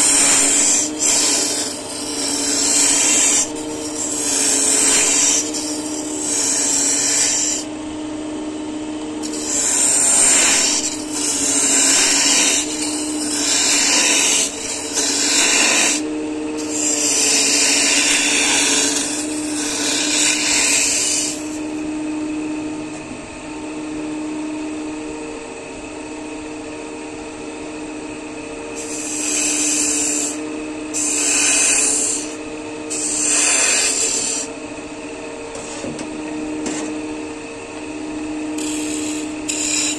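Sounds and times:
turning tool scraping wood: 0.0 - 7.7, 9.2 - 21.7, 28.8 - 34.5, 35.5 - 36.0, 38.6 - 39.9
wood lathe humming: 0.0 - 8.2, 8.8 - 21.9, 27.1 - 39.9.

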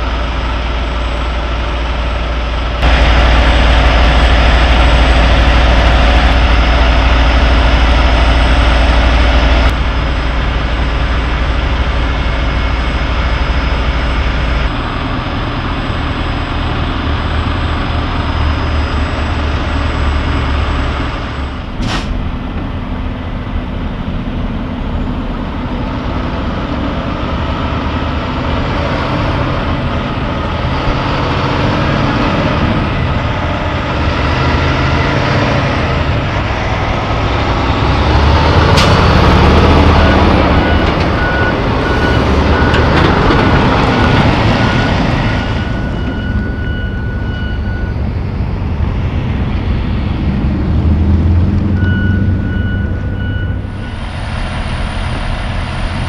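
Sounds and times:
diesel truck engine idling: 0.0 - 56.0.

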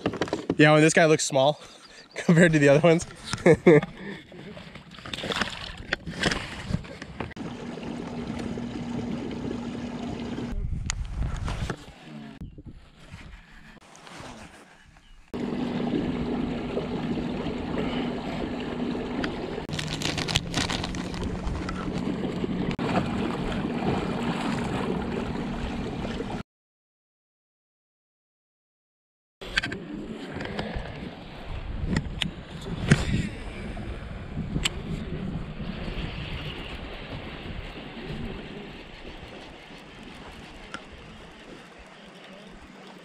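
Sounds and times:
water washing: 7.3 - 10.6, 15.4 - 26.4, 36.4 - 43.0
electric motor humming: 7.4 - 10.6
wind on microphone: 10.2 - 13.8, 30.2 - 41.4.

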